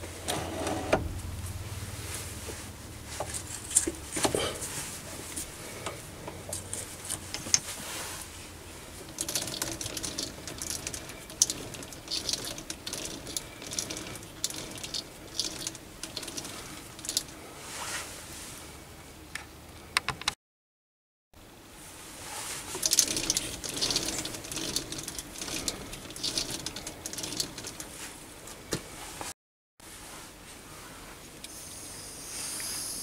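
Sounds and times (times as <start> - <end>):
low motor hum: 0.0 - 7.6, 8.6 - 17.5.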